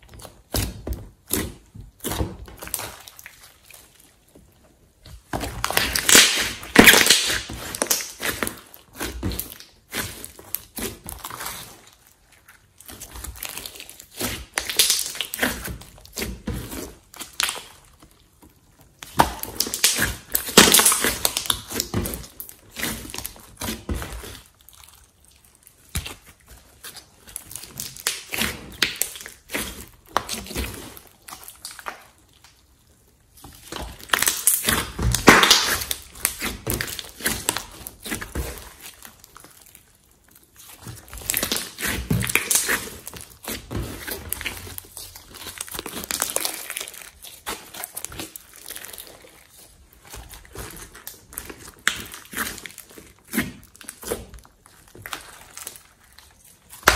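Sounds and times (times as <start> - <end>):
slime squeezed by hand: 5.4 - 17.9, 33.3 - 56.9.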